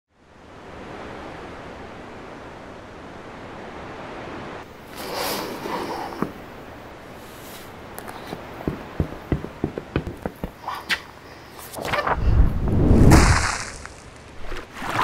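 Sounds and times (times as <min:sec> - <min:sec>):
sea waves washing: 0:00.3 - 0:11.6
rustling and knocking: 0:08.0 - 0:10.7.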